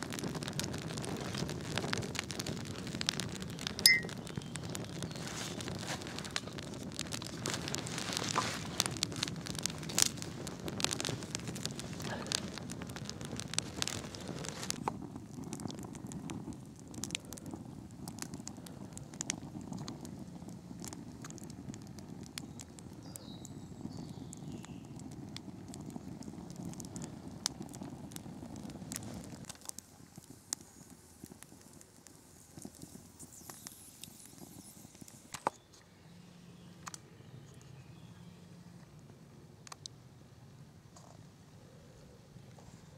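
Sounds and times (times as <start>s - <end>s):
campfire crackles and pops: 0.0s - 42.9s
low rumble of flames: 0.0s - 42.9s.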